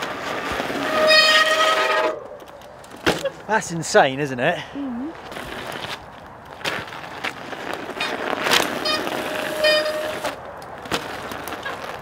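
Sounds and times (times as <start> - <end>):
studded tyres crunching on ice: 0.0 - 3.6, 5.1 - 12.0
short squealing tones: 0.7 - 2.4, 8.7 - 10.4
bike wheels knocking down: 5.3 - 12.0.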